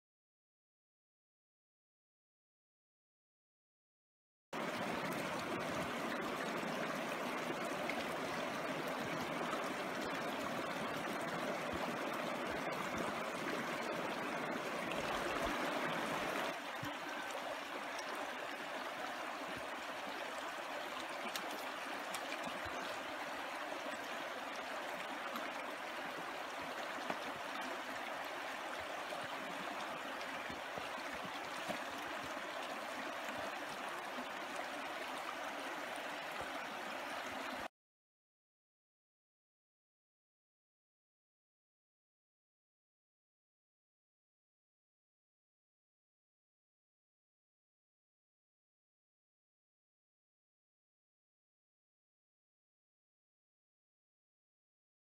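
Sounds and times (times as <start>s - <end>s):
creek water babbling: 4.6s - 37.7s.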